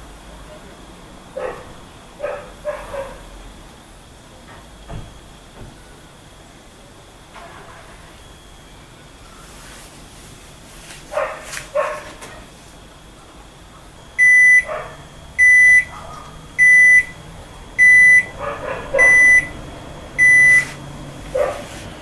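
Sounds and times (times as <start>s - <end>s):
dog barking and yipping: 1.4s - 3.2s, 11.1s - 12.1s, 14.6s - 15.0s, 15.9s - 16.3s, 18.1s - 19.5s, 21.3s - 21.8s
washing machine high beeps: 14.1s - 20.8s.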